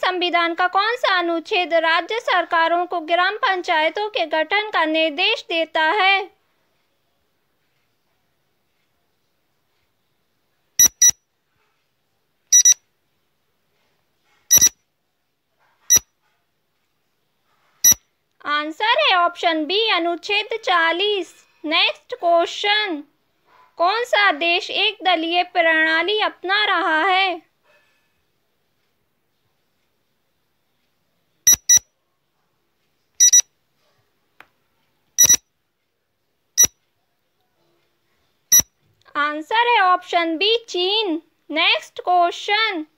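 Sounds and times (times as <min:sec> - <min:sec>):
short high electronic beeps: 0:10.8 - 0:11.2, 0:12.5 - 0:12.8, 0:14.5 - 0:14.8, 0:31.5 - 0:31.8, 0:33.2 - 0:33.4, 0:35.2 - 0:35.4.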